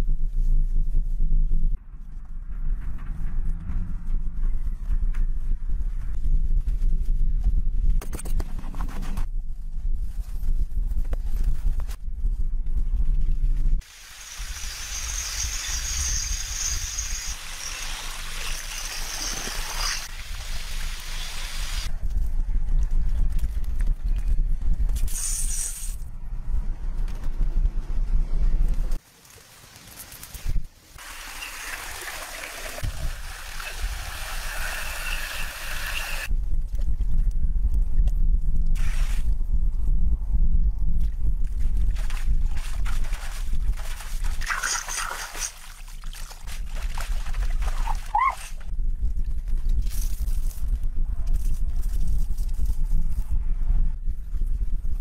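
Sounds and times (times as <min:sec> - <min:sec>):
low rumble: 0:00.0 - 0:13.8, 0:26.0 - 0:29.0, 0:36.3 - 0:44.4
stream water trickling over rock: 0:31.0 - 0:36.3.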